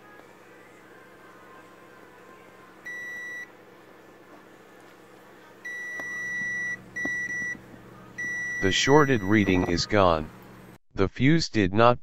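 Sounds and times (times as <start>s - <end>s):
multimeter continuity beeping: 2.9s - 3.5s, 5.6s - 7.6s, 8.2s - 10.2s.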